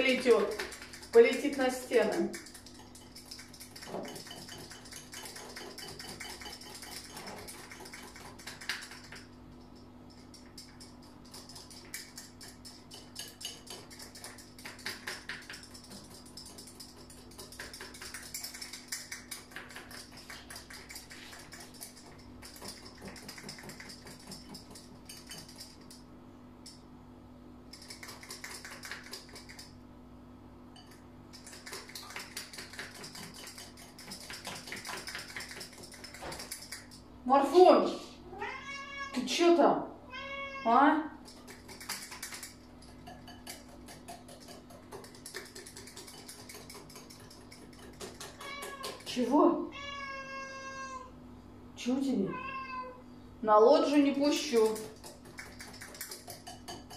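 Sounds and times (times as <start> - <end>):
whisk beating batter in bowl: 0.0 - 9.4, 10.2 - 25.9, 30.8 - 37.0, 41.2 - 49.3, 54.2 - 56.9.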